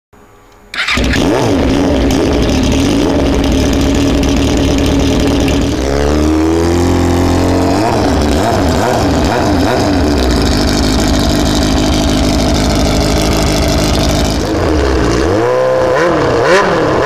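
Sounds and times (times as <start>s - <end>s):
motorcycle engine revving: 0.7s - 17.0s.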